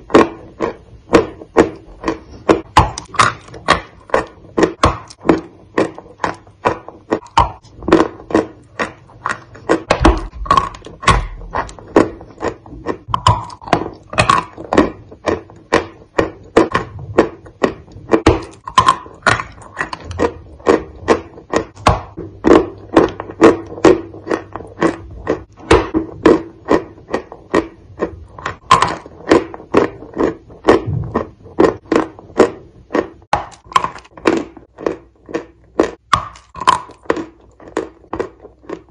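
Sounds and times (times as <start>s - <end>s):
crunchy cookie chewing: 0.0s - 38.9s
wet mouth sounds: 0.0s - 38.9s.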